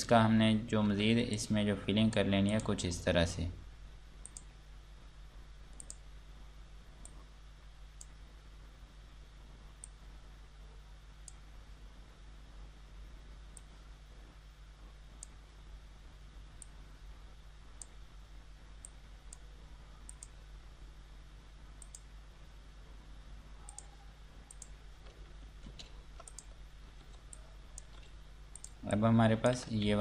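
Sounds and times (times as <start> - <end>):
steady low hum: 0.0 - 30.0
computer mouse clicking: 4.2 - 4.5, 5.8 - 6.0, 20.1 - 20.4, 21.8 - 22.1, 23.6 - 28.8.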